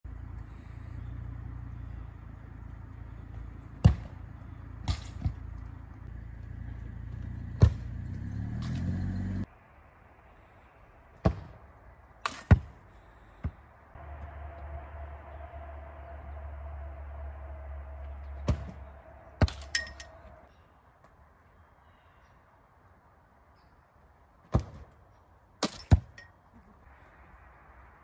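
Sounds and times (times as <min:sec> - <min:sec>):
steady low rumble: 0:00.0 - 0:08.8, 0:13.0 - 0:20.6
rising engine-like hum: 0:00.0 - 0:09.5, 0:13.9 - 0:20.6
foot kicking soccer ball: 0:03.2 - 0:08.2
ball striking rebounder net: 0:03.8 - 0:04.2, 0:07.6 - 0:08.0, 0:18.4 - 0:18.8.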